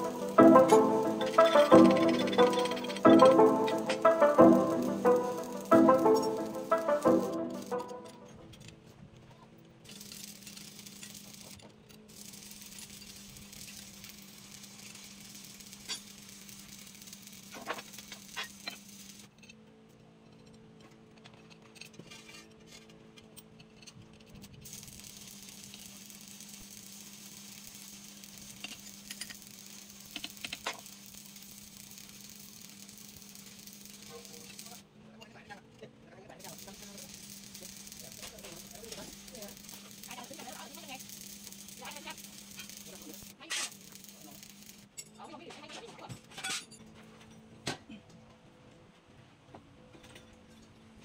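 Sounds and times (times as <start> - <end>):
wrench clicking on steel bolts: 28.4 - 31.0.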